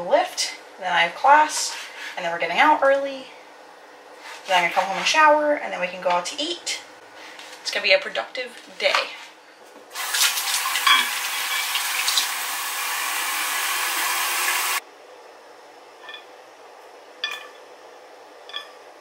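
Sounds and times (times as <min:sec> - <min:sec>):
faucet filling water bottle: 0:10.0 - 0:14.8.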